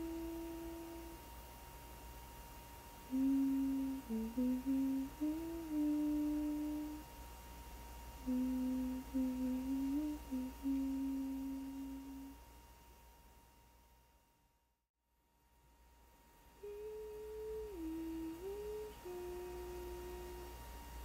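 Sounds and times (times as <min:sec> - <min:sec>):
person humming a slow melody: 0:00.0 - 0:01.3, 0:03.0 - 0:07.1, 0:08.2 - 0:12.4, 0:16.5 - 0:20.7.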